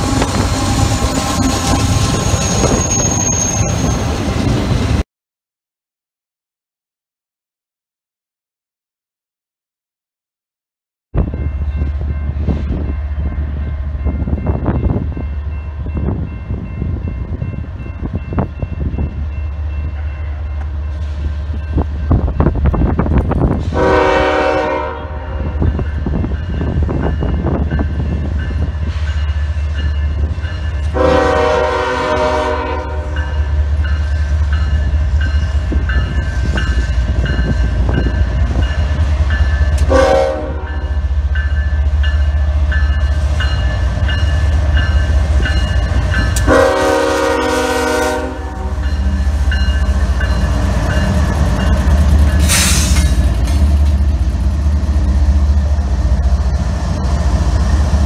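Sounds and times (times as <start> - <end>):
diesel locomotive engine rumble: 0.0 - 5.0, 11.2 - 58.0
train air horn blasts: 23.6 - 25.6, 30.9 - 33.2, 39.8 - 40.8, 46.4 - 48.9
brief hiss: 52.4 - 53.2.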